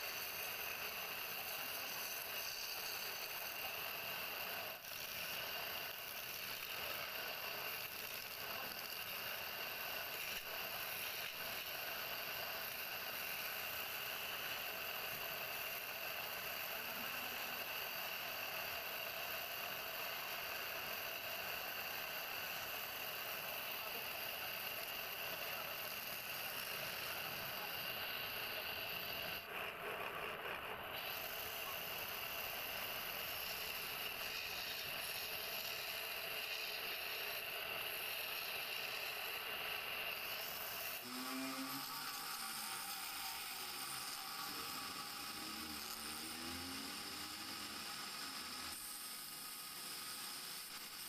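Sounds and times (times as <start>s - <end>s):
wood lathe running: 0.0s - 51.0s
chisel scraping spinning wood: 0.1s - 3.7s.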